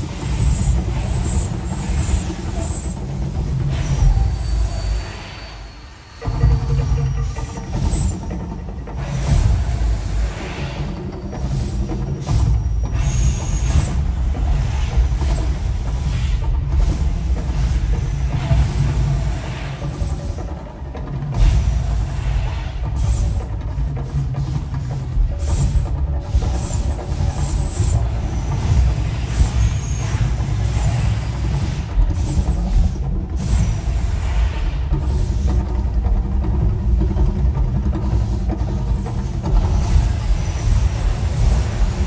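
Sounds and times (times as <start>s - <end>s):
percussion soundtrack: 6.2s - 42.0s
gas fire jets hissing: 21.3s - 36.3s, 37.0s - 42.0s.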